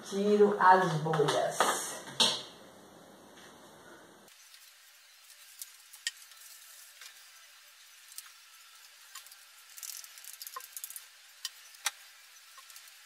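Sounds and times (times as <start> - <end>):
crackly rustle: 4.3 - 13.0.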